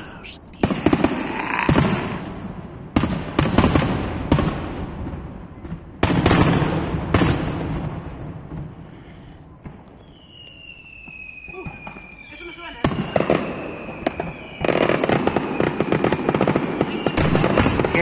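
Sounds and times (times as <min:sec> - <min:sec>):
firework bursts booming: 0:00.0 - 0:09.0, 0:09.6 - 0:18.0
falling firework whistle: 0:09.9 - 0:17.7.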